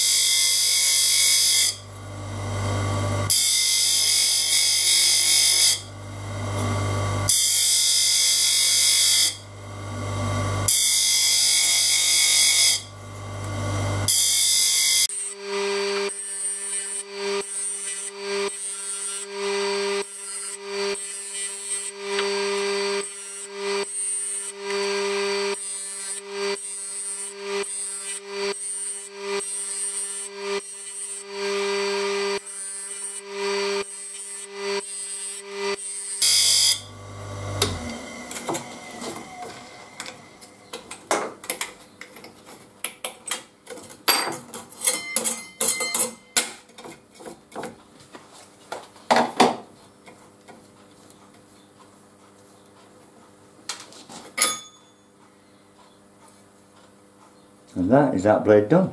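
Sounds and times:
grinding wheel grinding saw teeth: 0.0 - 41.1.

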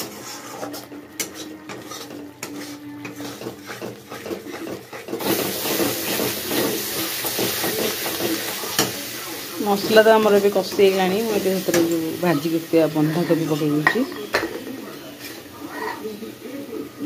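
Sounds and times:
spatula scraping a pan: 0.0 - 16.4
paste sizzling in oil: 0.0 - 17.0.

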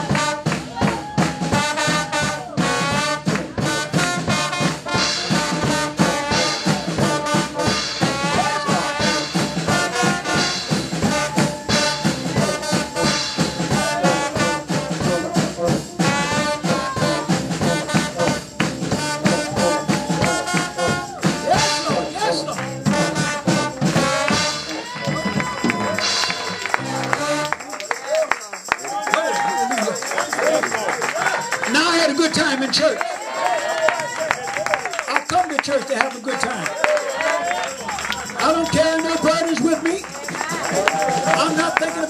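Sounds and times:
brass-like lead lines: 0.0 - 28.1
church praise music: 0.0 - 42.0
steady drumbeat: 0.0 - 42.0.

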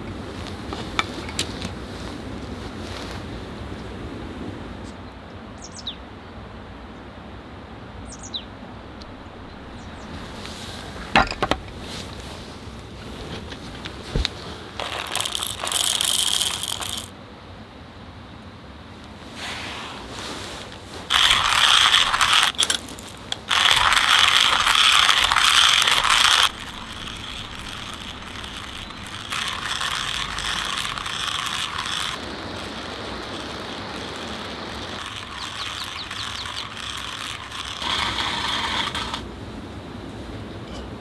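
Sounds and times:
hand grinder grinding coffee beans: 13.4 - 17.1, 20.9 - 39.2.

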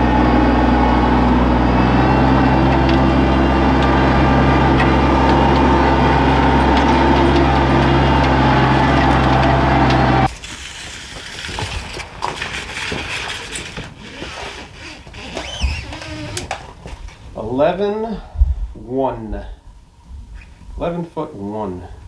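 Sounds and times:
tractor engine running: 0.0 - 11.2.

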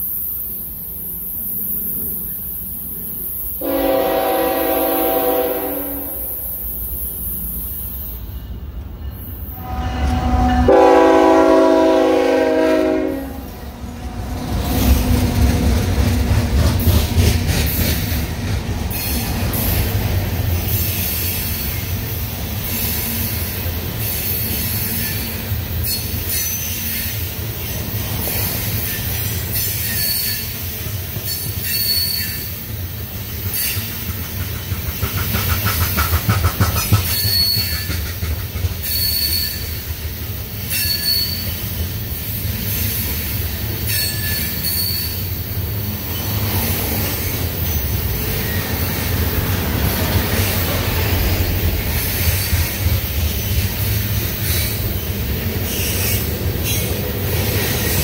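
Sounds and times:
train cars rumbling: 0.0 - 58.0
locomotive horn: 3.6 - 6.5, 9.5 - 13.6
high wheel squeals: 28.8 - 30.6, 31.2 - 32.6, 37.0 - 38.0, 38.8 - 39.8, 40.6 - 41.8, 42.7 - 49.1
wheels clicking over rail joints: 33.4 - 41.8.

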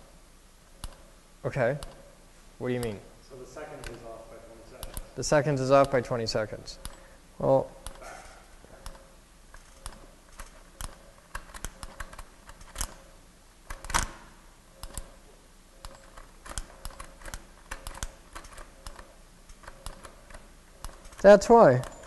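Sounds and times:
small metallic clicks and taps: 5.7 - 6.1.

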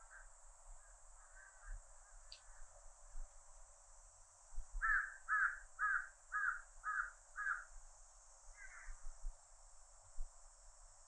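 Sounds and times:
cicadas droning: 0.0 - 11.0
crow cawing: 1.2 - 1.7, 4.8 - 7.7, 8.6 - 9.0.

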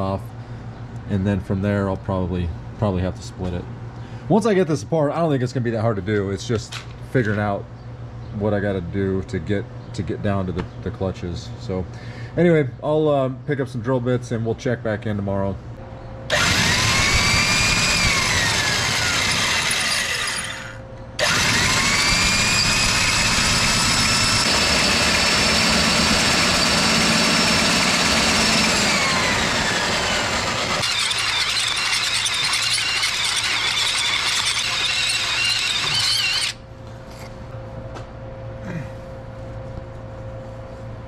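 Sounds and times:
corded electric drill whining: 16.3 - 36.6
cordless drill running: 16.3 - 36.6.

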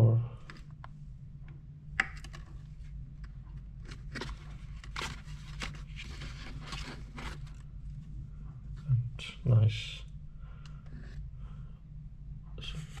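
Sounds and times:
steady low hum: 0.0 - 13.0
headset scraping and rustling: 2.1 - 7.8.

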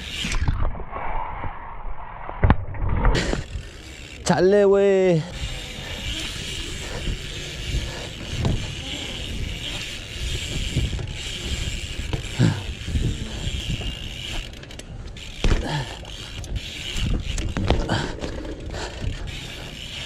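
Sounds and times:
bike tyres rolling on concrete: 0.0 - 1.4, 2.8 - 20.0
rear hub ticking: 5.1 - 20.0
sharp knocks of bike landings: 8.1 - 18.6.

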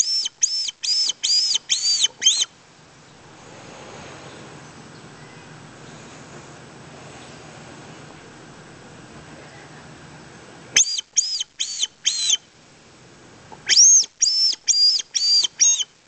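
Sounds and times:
squirrel caller whistled notes: 0.0 - 2.5, 10.8 - 12.4, 13.7 - 15.9.

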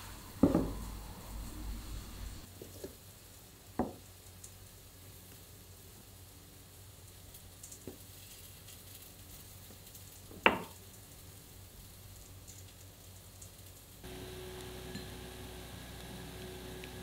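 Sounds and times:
knock: 0.4 - 0.8
faint crackles: 4.2 - 17.0.

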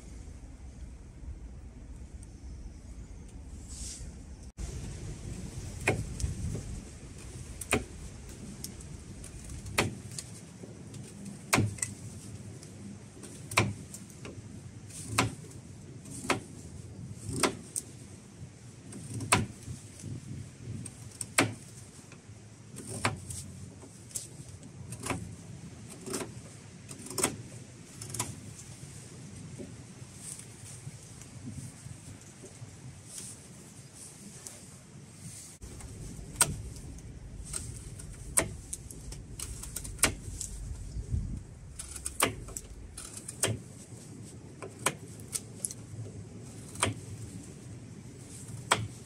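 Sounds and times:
knife carving wood: 5.6 - 18.2, 18.8 - 28.8, 35.6 - 49.0.

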